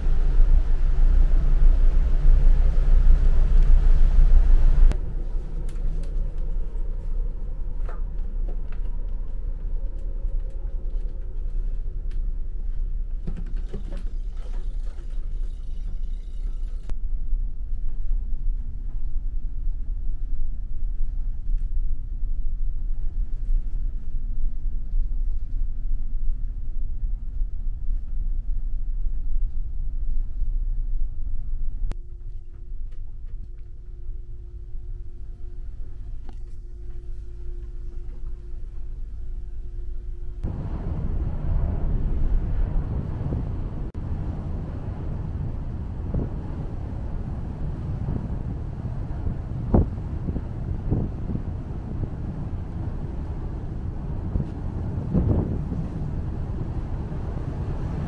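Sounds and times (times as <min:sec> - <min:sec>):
ship engines rumbling: 0:00.0 - 0:17.0, 0:33.7 - 0:58.0
wind blowing across microphone: 0:40.4 - 0:58.0.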